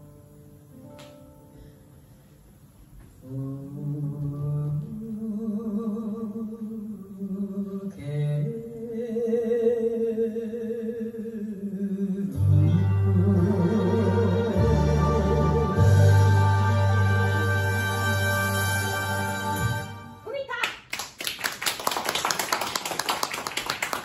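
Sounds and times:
deeper musical accompaniment: 12.4 - 20.2.

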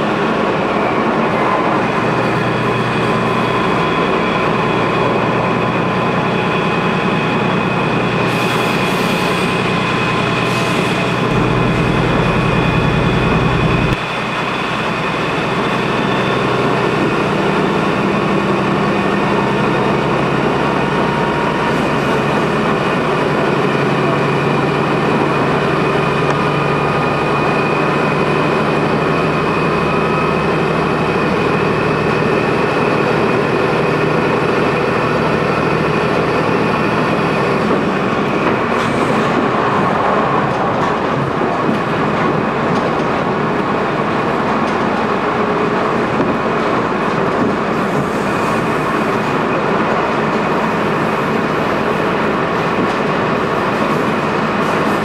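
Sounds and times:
train engine and wheels droning: 0.0 - 55.0
steady whining tones: 9.5 - 14.2
deep low rumble: 10.5 - 14.0.

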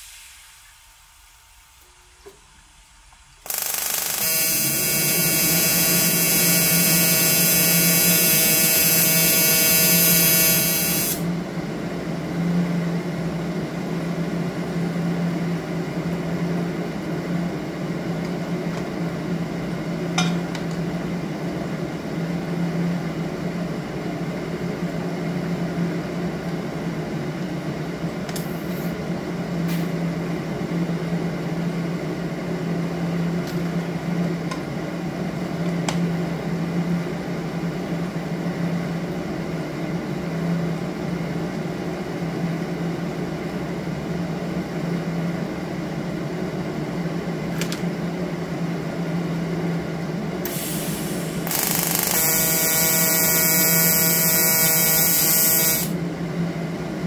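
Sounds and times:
steady hum: 0.0 - 57.0
welding arc buzzing: 3.4 - 11.3, 50.4 - 56.0.

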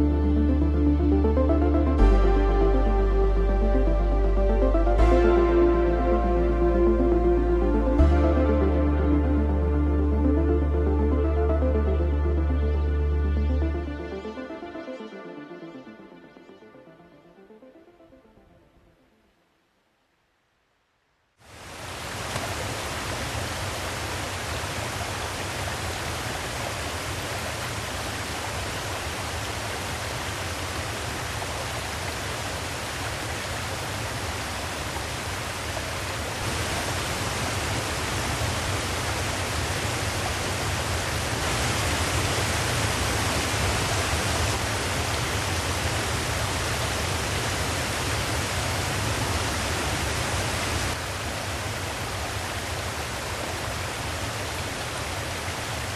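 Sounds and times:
mountain stream rushing over rocks: 21.4 - 55.9.

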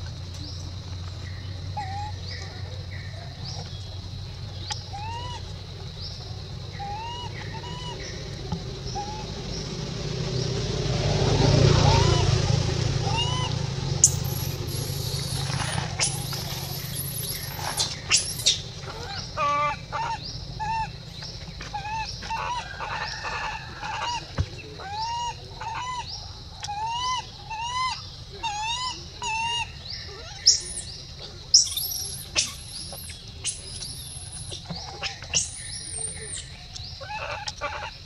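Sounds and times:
shrill high animal calls: 1.7 - 3.6, 4.7 - 9.7, 11.6 - 38.0
short arched animal chirps: 14.0 - 18.6.

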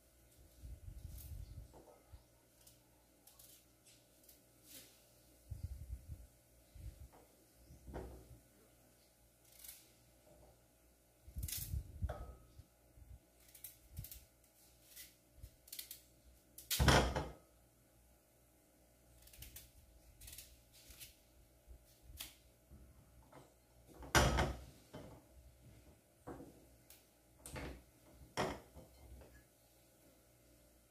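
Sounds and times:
knife scraping potato skin: 19.1 - 21.2.

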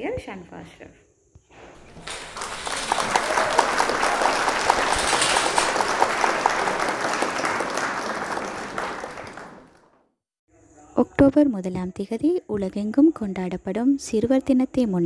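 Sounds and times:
crowd applauding: 1.6 - 9.9.

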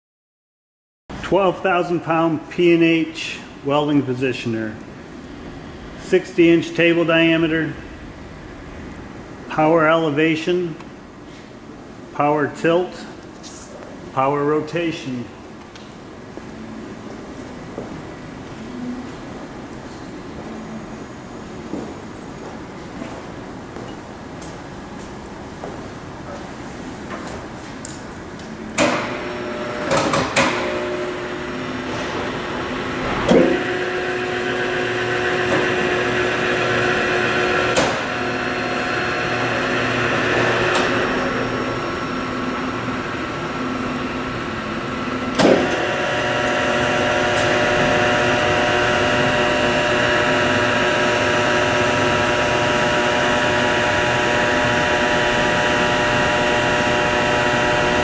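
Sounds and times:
motor whine: 28.7 - 58.0
machine clunks: 28.8 - 30.8, 45.3 - 45.9.

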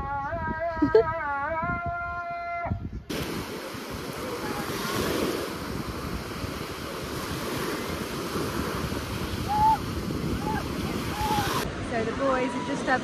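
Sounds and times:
wind buffeting microphone: 0.0 - 13.0
waves washing up sand: 3.1 - 13.0.

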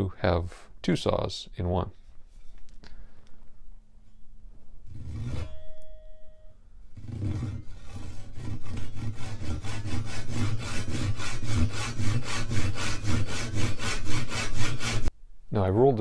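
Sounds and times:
hand saw cutting wood: 7.0 - 15.1.

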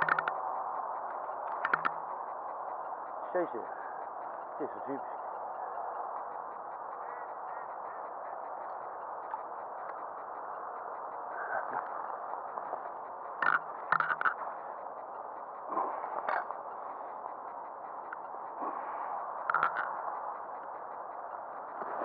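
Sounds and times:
sharp clicks and knocks: 1.5 - 2.0.

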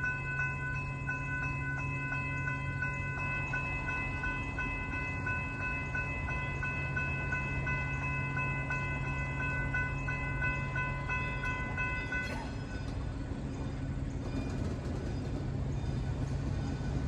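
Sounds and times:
crossing warning bell ringing: 0.0 - 14.7.

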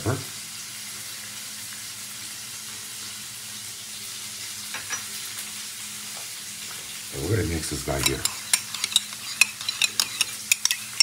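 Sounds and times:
steak sizzling: 3.8 - 11.0.

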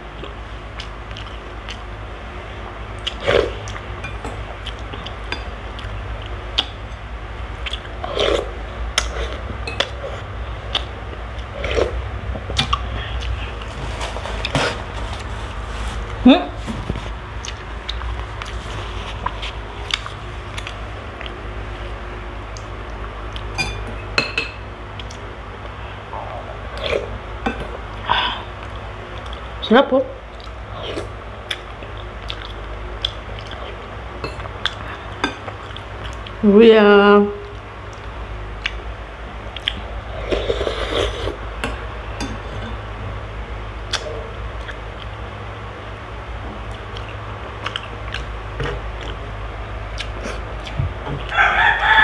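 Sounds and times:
wet chewing mouth noises: 7.6 - 13.7, 17.0 - 21.4, 30.3 - 36.4, 39.5 - 41.4, 46.6 - 51.4.

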